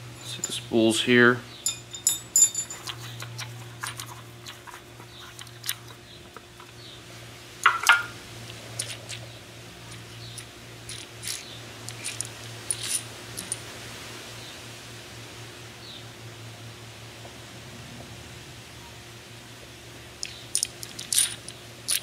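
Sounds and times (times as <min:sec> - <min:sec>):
small metal parts clinking: 0:00.0 - 0:00.7, 0:01.6 - 0:06.0, 0:07.6 - 0:08.1, 0:08.8 - 0:09.2, 0:09.9 - 0:13.6, 0:20.2 - 0:22.0.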